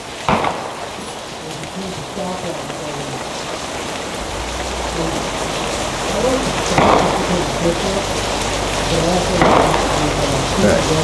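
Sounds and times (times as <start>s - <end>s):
rain pattering on wet surfaces: 0.0s - 11.0s
low rumble: 3.7s - 11.0s.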